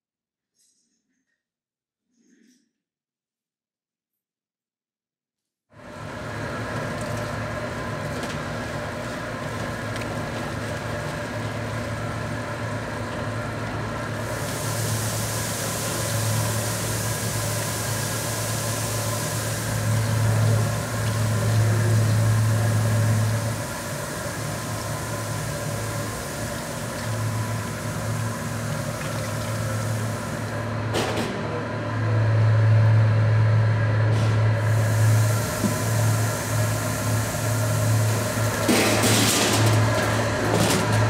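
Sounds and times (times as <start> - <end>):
machinery hum: 5.8 - 41.0
tap water pouring into sink: 6.7 - 30.5.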